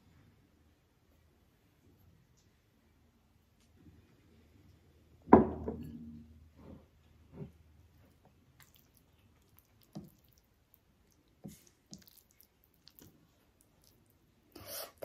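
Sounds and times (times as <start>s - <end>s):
ceramic bowl knocking on table: 5.4s - 5.9s
wet squishes of fingers mixing: 7.2s - 14.6s.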